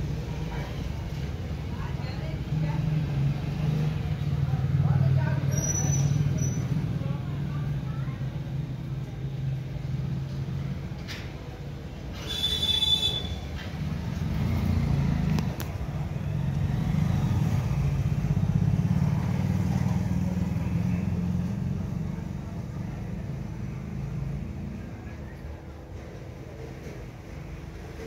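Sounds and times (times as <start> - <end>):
vehicle engine rumbling: 8.7 - 28.0.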